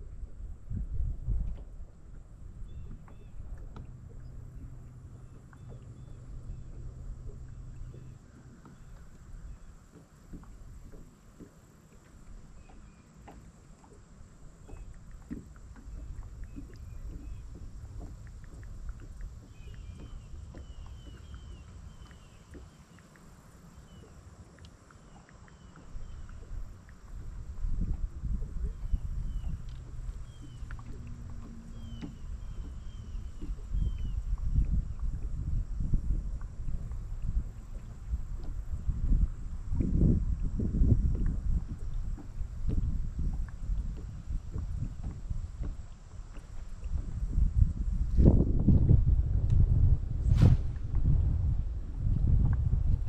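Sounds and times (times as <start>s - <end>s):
steady low hum: 0.0s - 53.0s
water slapping against boat hull: 0.0s - 53.0s
faint ticks: 2.9s - 35.4s.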